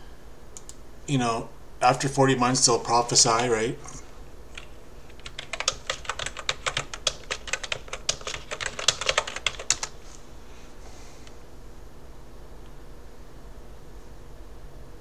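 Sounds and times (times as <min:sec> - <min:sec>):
computer keyboard typing: 0:04.5 - 0:10.0.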